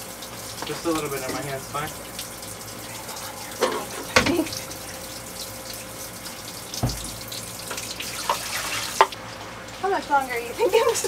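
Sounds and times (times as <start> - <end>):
water splashing into steel sink: 0.0 - 9.2
low thump: 6.8 - 7.2.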